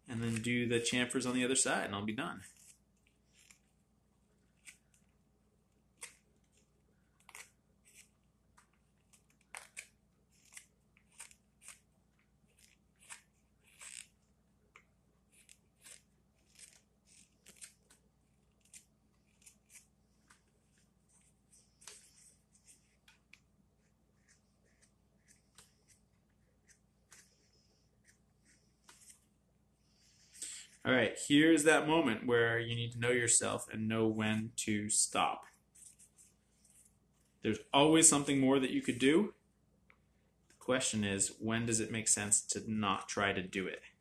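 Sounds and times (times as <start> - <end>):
knife carving wood: 2.4 - 3.8, 4.4 - 5.2, 5.8 - 14.2, 15.3 - 29.2.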